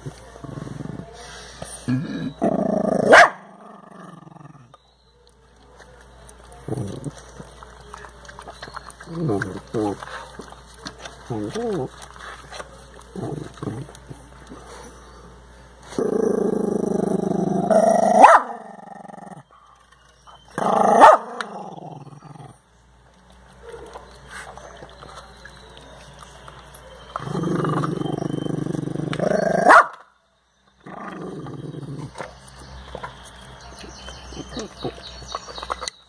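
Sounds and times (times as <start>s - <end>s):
dog growling: 0.4s - 4.8s, 6.6s - 7.5s, 8.6s - 10.5s, 11.2s - 12.2s, 13.0s - 14.7s, 15.9s - 19.5s, 20.5s - 22.6s, 27.2s - 29.7s, 30.8s - 32.4s
dog barking sharply: 3.1s - 3.5s, 18.2s - 18.6s, 21.0s - 21.3s, 29.6s - 30.0s.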